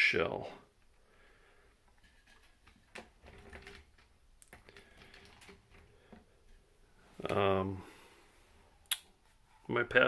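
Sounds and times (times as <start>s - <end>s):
plastic parts clicking: 1.9s - 6.3s.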